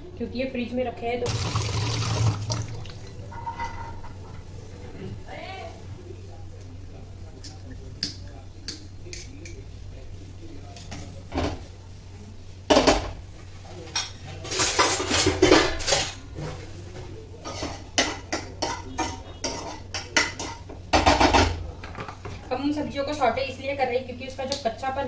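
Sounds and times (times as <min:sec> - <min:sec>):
steel utensils clanking: 0:01.3 - 0:04.5, 0:14.0 - 0:16.7
plates and pans knocking together: 0:17.5 - 0:22.2.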